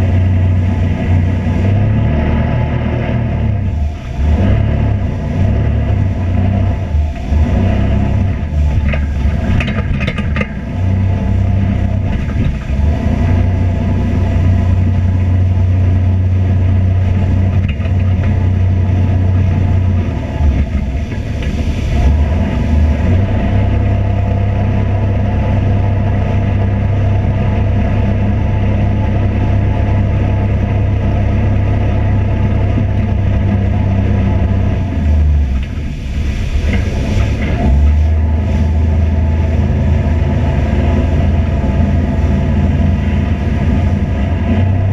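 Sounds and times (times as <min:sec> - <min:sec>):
vehicle engine running: 0:00.0 - 0:44.9.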